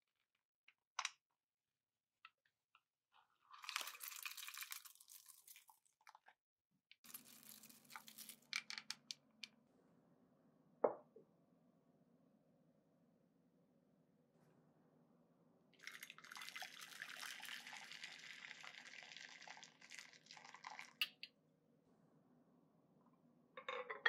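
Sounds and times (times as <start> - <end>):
glass bowl knocking on wood: 10.8 - 11.1.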